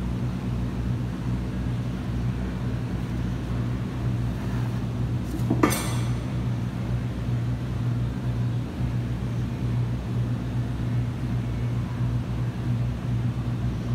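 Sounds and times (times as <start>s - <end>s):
low machine hum: 0.0s - 13.9s
metallic clank: 5.4s - 6.5s.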